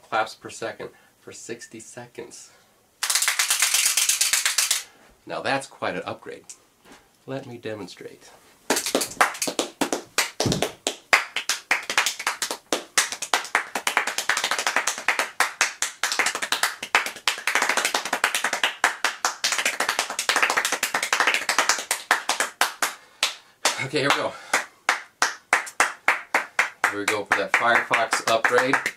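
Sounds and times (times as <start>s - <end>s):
person clapping very fast: 3.0s - 4.9s, 8.7s - 28.9s.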